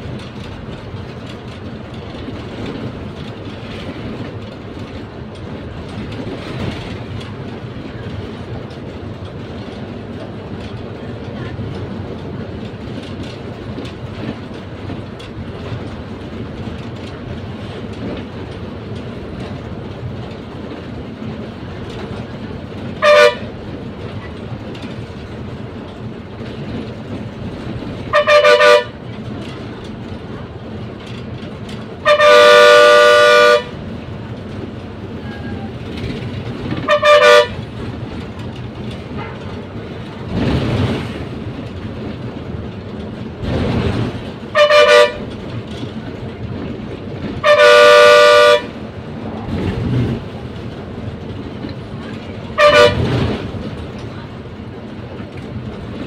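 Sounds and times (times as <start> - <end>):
bus engine and road rumble: 0.0 - 56.0
bus horn blasts: 23.0 - 23.5, 28.1 - 29.0, 32.0 - 33.8, 36.8 - 37.7, 39.2 - 39.7, 44.5 - 45.3, 47.4 - 48.8, 52.6 - 53.2.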